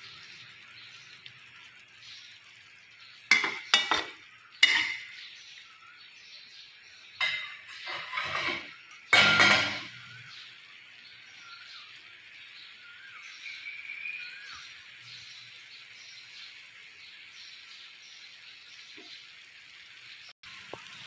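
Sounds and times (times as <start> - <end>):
spatula scraping wok: 3.1 - 5.3, 7.0 - 10.6
spatula knocking on wok: 3.3 - 5.2, 9.1 - 10.0.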